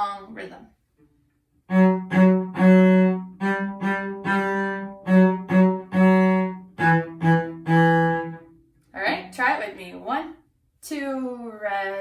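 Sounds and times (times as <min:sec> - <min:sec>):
solo cello bowed: 0:01.7 - 0:08.5.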